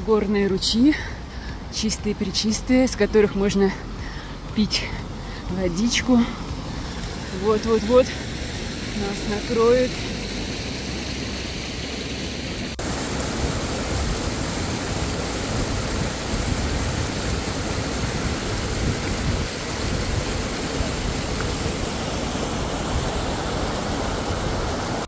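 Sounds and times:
rushing wind on microphone: 12.8 - 25.0.

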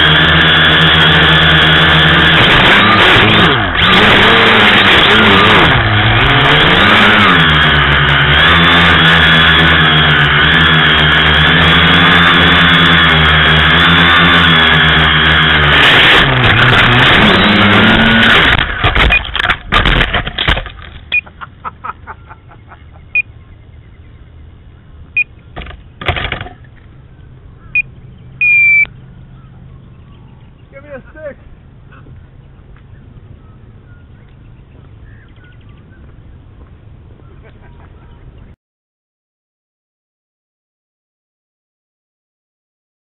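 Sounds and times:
electric motors and propellers whining: 0.0 - 21.4, 22.0 - 38.6
drone hitting branches: 7.4 - 21.4.

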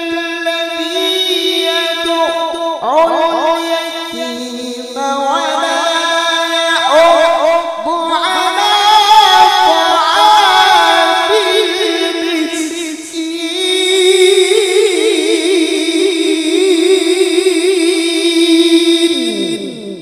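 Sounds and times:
man chanting melodic recitation: 0.0 - 17.2.

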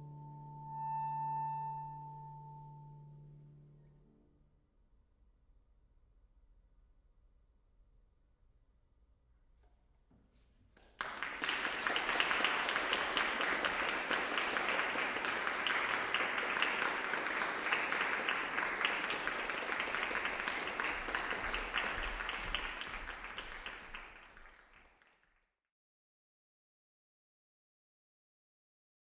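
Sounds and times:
audience applause: 10.8 - 25.3.

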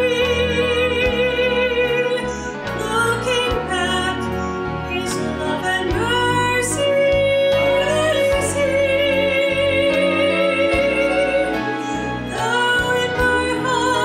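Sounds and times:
instrumental accompaniment: 0.0 - 14.0
woman singing: 0.0 - 14.0.

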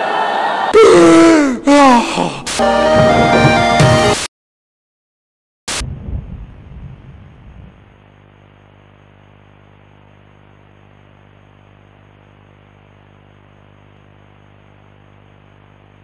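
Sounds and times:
low buzzing hum with hiss: 5.8 - 16.0.

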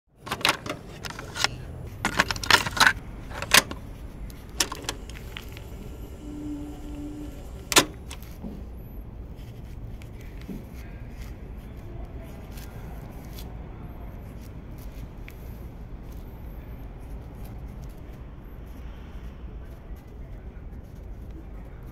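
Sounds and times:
sharp clicks and knocks: 0.2 - 6.2, 7.3 - 8.5.

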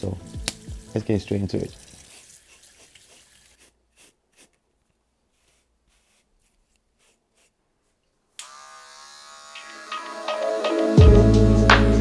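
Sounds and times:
electric hair clipper buzzing: 8.4 - 11.0.

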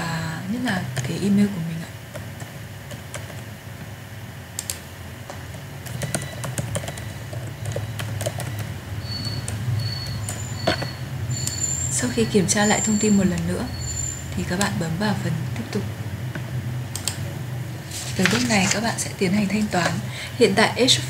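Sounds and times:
keyboard keystrokes clicking: 5.8 - 8.7.

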